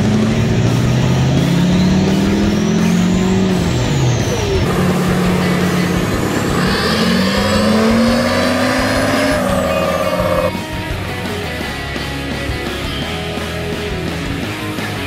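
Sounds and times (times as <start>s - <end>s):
diesel engine revving: 0.0s - 14.4s
truck driving: 0.0s - 15.0s
turbo whistle: 4.2s - 10.8s.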